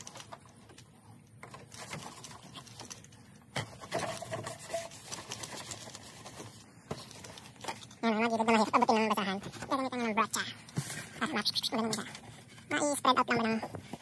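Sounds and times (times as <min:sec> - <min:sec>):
cloth rubbing on plastic and metal: 0:01.4 - 0:14.0.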